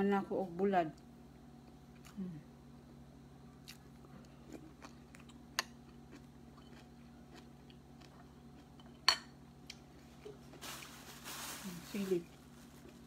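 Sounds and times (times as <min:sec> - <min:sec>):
faint steady hum: 0:00.0 - 0:13.0
chewing: 0:03.6 - 0:09.0.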